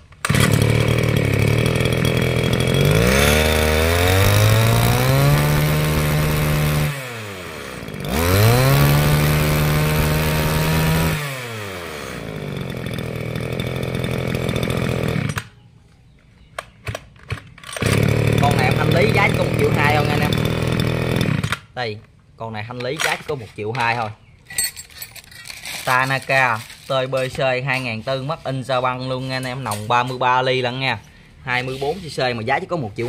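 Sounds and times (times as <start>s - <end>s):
brush cutter engine revving: 0.1s - 15.6s, 17.6s - 21.8s.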